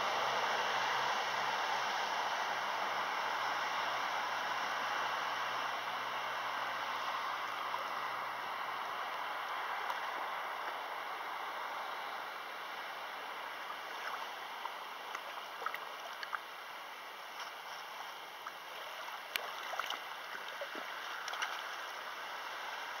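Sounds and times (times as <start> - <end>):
water lapping on pebbles: 13.3 - 22.2
small clicks and splashes: 13.7 - 16.6, 17.3 - 22.1.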